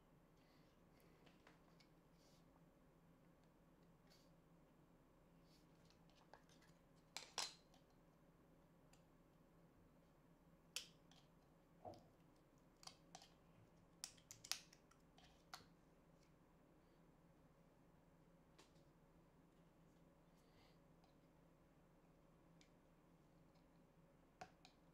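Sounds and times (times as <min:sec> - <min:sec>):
small clicks and taps: 0:14.0 - 0:16.3.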